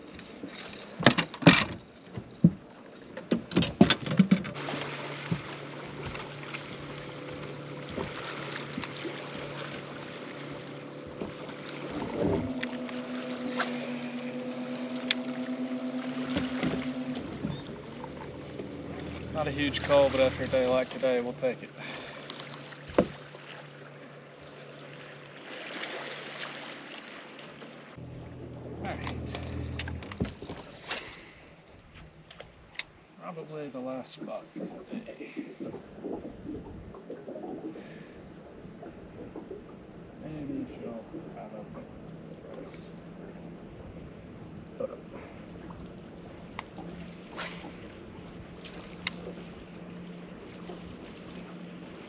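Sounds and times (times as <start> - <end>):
water lapping around boat hull: 0.0 - 52.0
electric motor humming: 8.7 - 20.7, 28.0 - 30.7.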